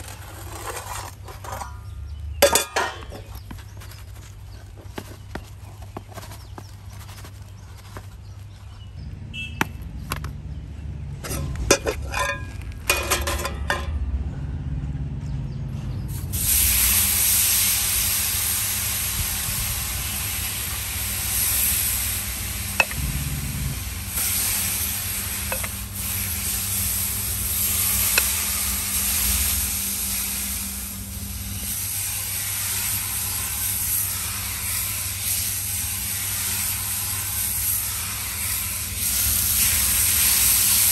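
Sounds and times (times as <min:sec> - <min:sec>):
metal utensil clinking on pot: 0:02.4 - 0:03.4, 0:11.2 - 0:13.9, 0:22.8 - 0:23.0
food sizzling in hot oil: 0:16.4 - 0:40.9.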